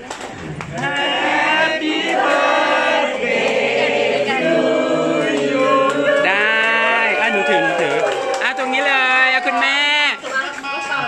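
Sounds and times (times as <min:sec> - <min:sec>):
group of people singing together: 0:00.4 - 0:07.2.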